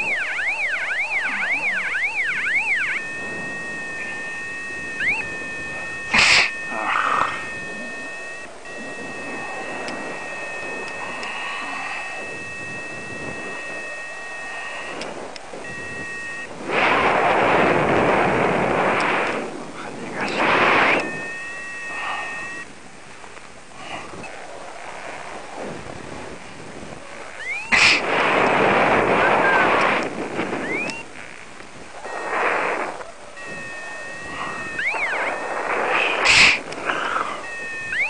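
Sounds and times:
variometer electronic tone: 0.0s - 19.4s, 20.1s - 22.8s, 26.8s - 31.3s, 31.9s - 38.0s
wind rushing over microphone: 0.0s - 38.0s.

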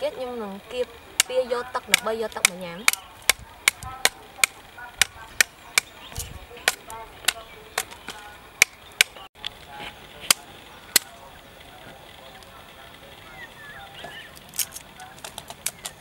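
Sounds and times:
knife chopping woody root: 1.2s - 9.3s, 10.3s - 11.1s.

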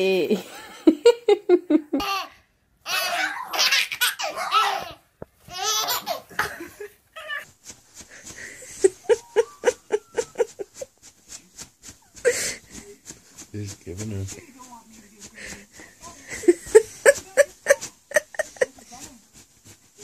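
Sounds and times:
baby laughing: 1.9s - 7.4s
soft short evenly spaced sounds: 3.9s - 20.0s.

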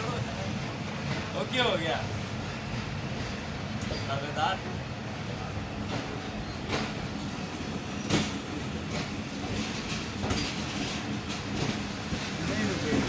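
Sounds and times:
train wheels rumbling on rails: 0.0s - 13.0s
sharp clacks from the track: 5.8s - 7.0s, 8.0s - 13.0s.

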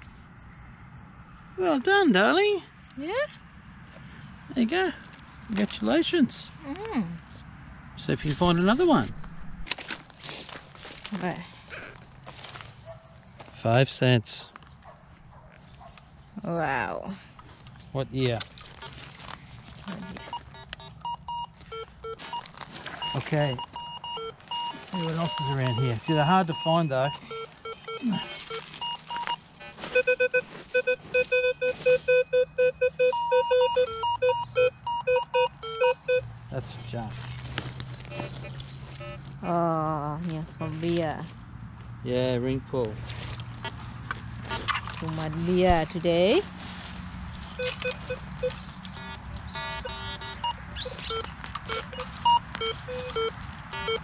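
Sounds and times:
metal detector beeping: 19.9s - 36.3s, 38.1s - 39.6s, 47.5s - 54.0s.

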